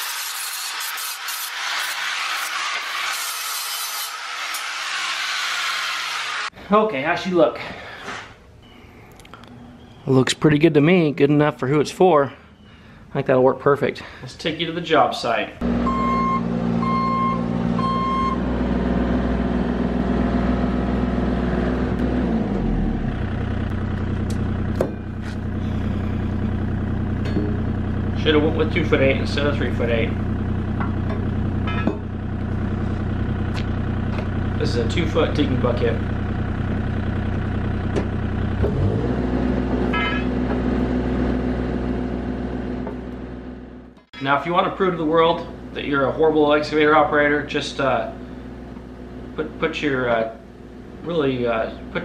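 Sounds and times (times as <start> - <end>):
reversing alarm beep: 8.6 - 10.2, 15.8 - 18.4
excavator diesel engine running: 15.6 - 44.1.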